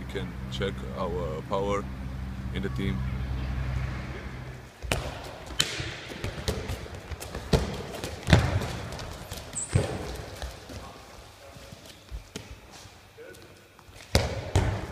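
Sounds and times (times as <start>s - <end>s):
balls thudding on floor and wall: 4.8s - 11.0s, 14.0s - 14.9s.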